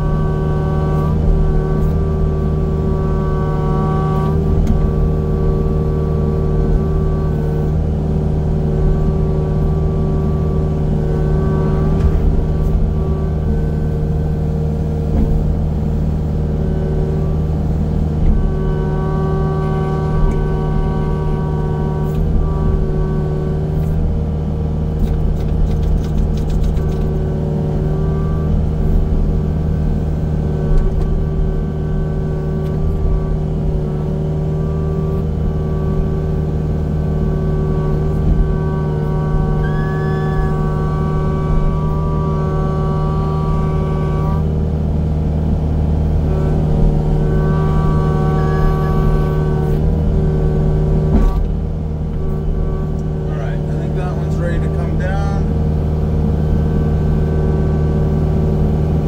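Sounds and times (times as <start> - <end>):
heavy machinery engine running: 0.0 - 59.0
high whining tones: 0.0 - 59.0.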